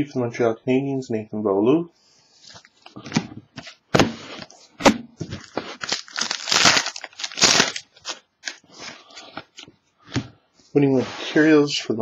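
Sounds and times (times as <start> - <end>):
wrapper tearing and crinkling: 5.3 - 8.7.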